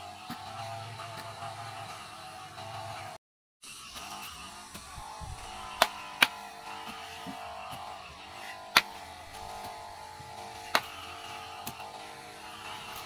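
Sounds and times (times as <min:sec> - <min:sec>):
hoe chopping into soil: 0:05.5 - 0:11.9.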